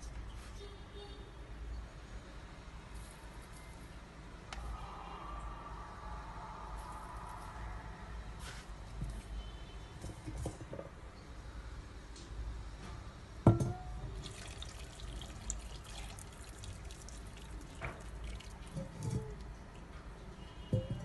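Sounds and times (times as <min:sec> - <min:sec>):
sauce trickling onto pasta: 0:14.2 - 0:19.9.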